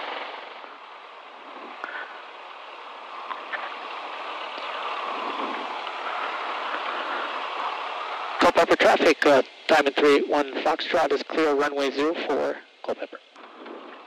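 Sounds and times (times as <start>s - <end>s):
aircraft cabin engine and airflow hiss: 0.0s - 14.0s
faint clicks: 3.2s - 4.8s, 5.7s - 6.0s.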